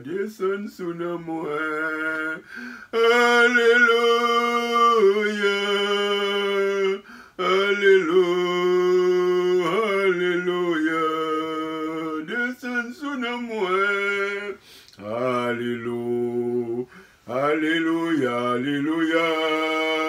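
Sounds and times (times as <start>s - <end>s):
man singing unaccompanied: 0.0s - 20.0s.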